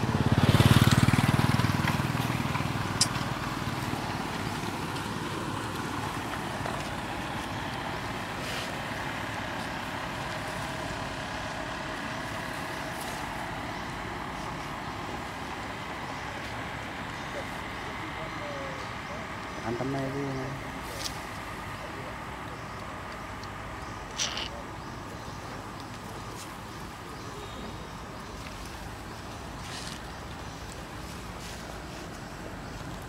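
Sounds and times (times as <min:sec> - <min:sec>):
vehicle passing: 0:00.0 - 0:22.4
outdoor background noise: 0:00.0 - 0:33.0.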